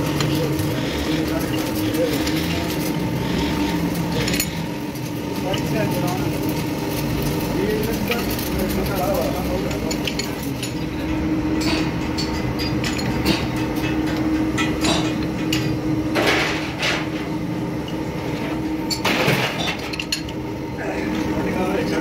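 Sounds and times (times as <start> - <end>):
machine hum: 0.0 - 22.0.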